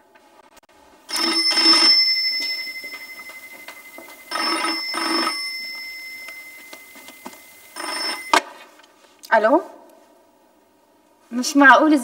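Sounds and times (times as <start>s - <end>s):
telephone bell ringing: 1.1s - 8.6s.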